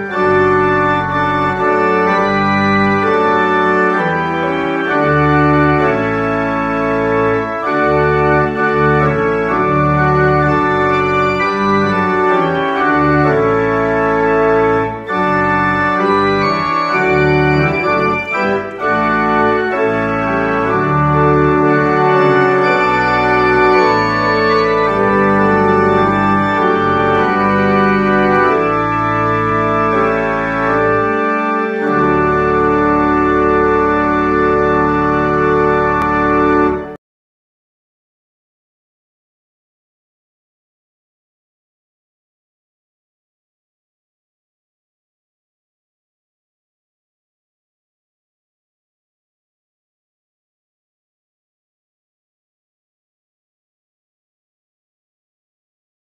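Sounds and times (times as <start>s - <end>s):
organ playing held chords: 0.0s - 37.0s
steady bass line: 0.1s - 36.9s.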